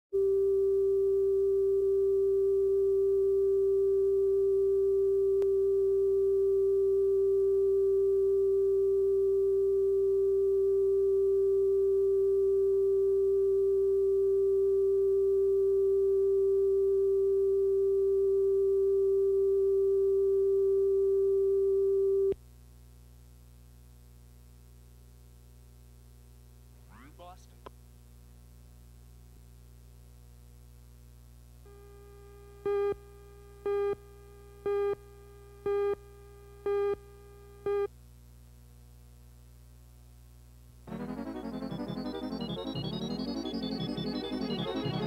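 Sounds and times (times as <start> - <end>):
sine test tone: 0.2 - 22.4, 31.6 - 37.9, 40.9 - 45.0
faint low hum: 0.2 - 45.0.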